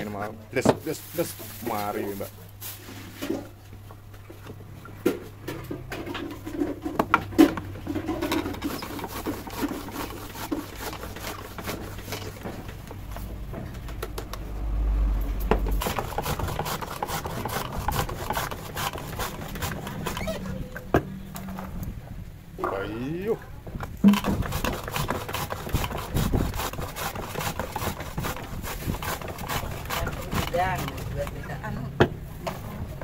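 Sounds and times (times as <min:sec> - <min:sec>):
sharp clicks and knocks: 0:12.1 - 0:14.4, 0:23.8 - 0:24.8
low rumble: 0:14.3 - 0:15.9.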